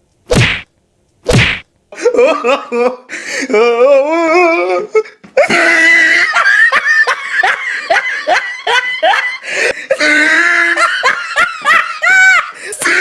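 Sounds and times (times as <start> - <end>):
loud human laughter: 2.0 - 3.1, 5.4 - 13.0.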